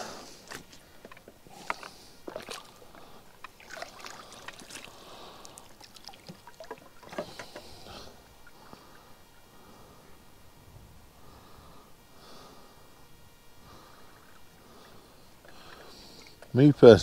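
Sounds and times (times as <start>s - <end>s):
water sloshing and dripping: 0.4s - 9.4s, 13.8s - 16.6s.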